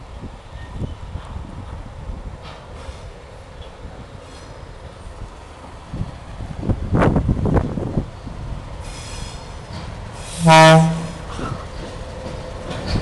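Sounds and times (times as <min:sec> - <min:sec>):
diesel locomotives rumbling: 0:00.0 - 0:13.0
locomotive horn blast: 0:10.4 - 0:11.3.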